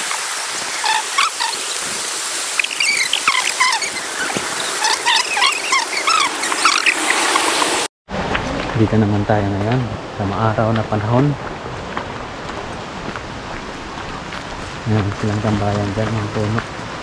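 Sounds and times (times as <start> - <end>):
river rushing over rapids: 0.0 - 7.8
small birds chirping: 0.7 - 7.8.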